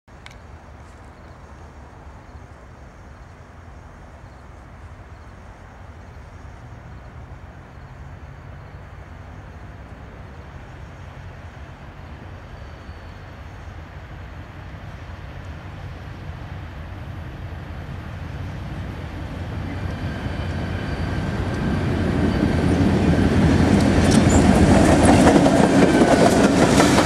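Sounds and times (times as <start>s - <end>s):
diesel locomotive engine drone: 0.1s - 27.0s
train rumble: 9.2s - 27.0s.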